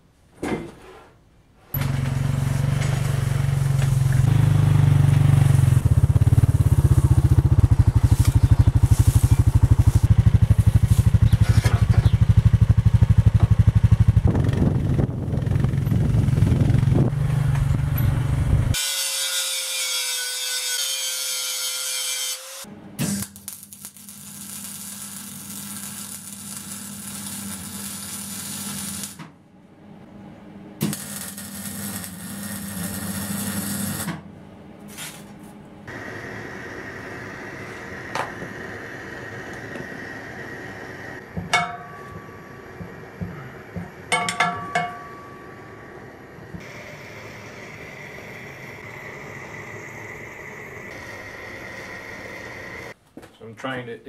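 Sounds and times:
small petrol engine running: 1.8s - 18.7s
hiss with a steady tone: 45.5s - 53.0s.

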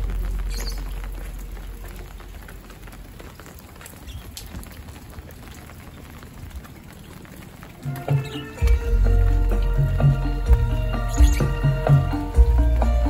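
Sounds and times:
rain on wet pavement: 0.0s - 13.0s
music: 7.8s - 13.0s.

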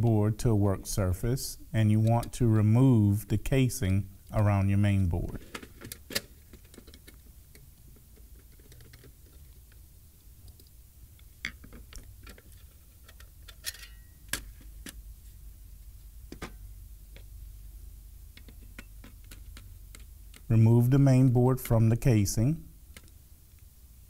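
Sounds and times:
metal cover clacks: 13.1s - 14.5s.

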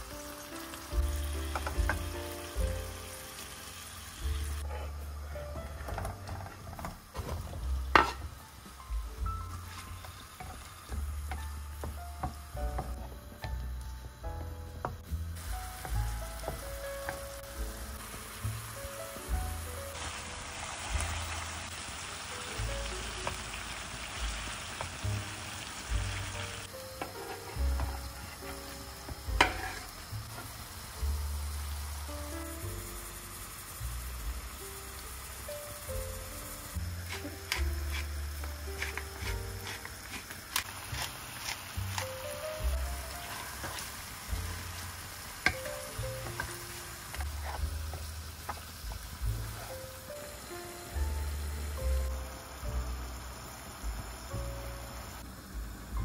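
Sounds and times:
food sizzling in frying pan: 0.0s - 56.0s
soft background music: 0.0s - 56.0s
wooden spatula stirring: 37.1s - 42.1s, 43.0s - 45.6s, 46.2s - 49.8s.

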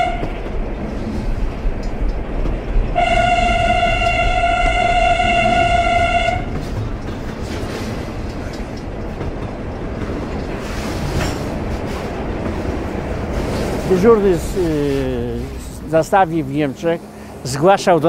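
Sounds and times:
train horn blowing: 0.0s - 0.4s, 3.0s - 6.5s
train rumbling across bridge: 0.0s - 18.0s.

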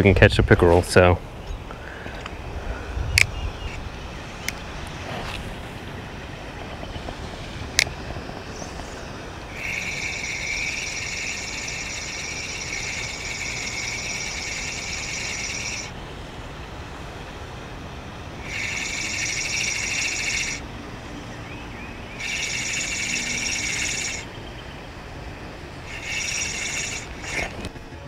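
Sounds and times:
fishing reel gear whirring: 9.5s - 15.9s, 18.4s - 20.6s, 22.2s - 24.3s, 25.8s - 27.7s.

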